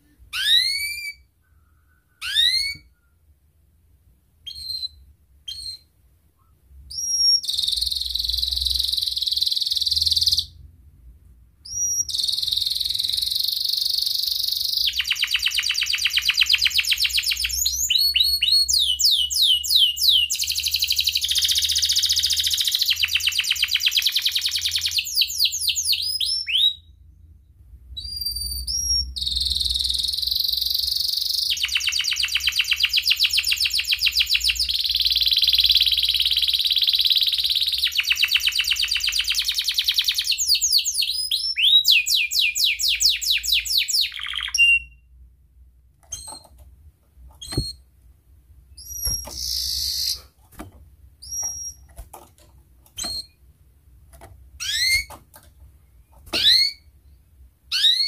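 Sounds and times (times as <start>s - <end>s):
canary singing trills: 2.2s - 2.9s, 4.4s - 5.9s, 6.9s - 10.6s, 11.6s - 27.0s, 28.0s - 45.0s, 48.7s - 50.3s, 51.2s - 52.0s, 54.6s - 55.2s, 56.2s - 56.9s, 57.7s - 58.0s.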